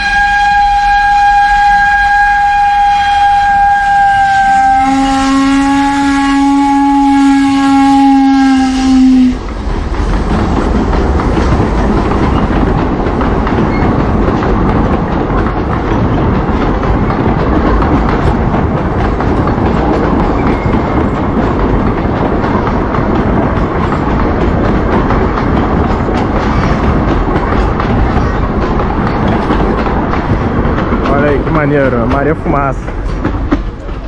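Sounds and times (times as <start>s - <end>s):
steam train whistle: 0.0s - 9.4s
train coaches rolling on rails: 0.0s - 34.0s.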